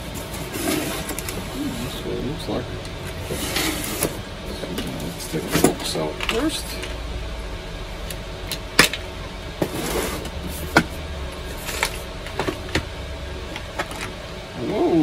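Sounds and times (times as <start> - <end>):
cardboard packaging rustling: 0.0 - 2.0, 3.1 - 6.5
low hum: 0.0 - 15.0.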